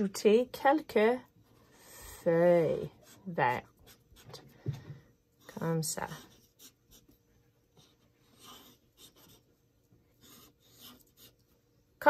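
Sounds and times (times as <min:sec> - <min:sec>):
felt-tip marker scratching on paper: 0:05.4 - 0:11.5.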